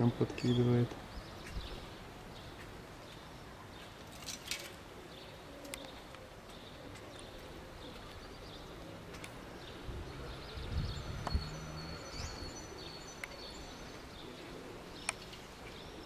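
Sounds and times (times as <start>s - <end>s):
outdoor background noise: 0.0s - 16.0s
bird chirps: 5.1s - 16.0s.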